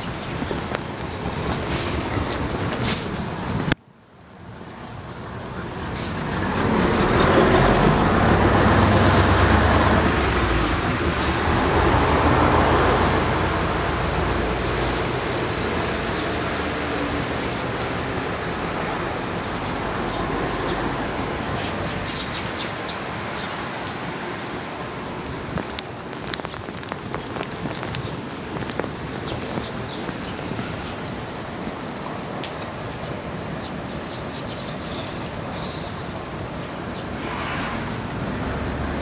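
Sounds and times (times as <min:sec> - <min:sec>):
rain on wet pavement: 0:00.0 - 0:39.0
low rumble: 0:37.1 - 0:38.9.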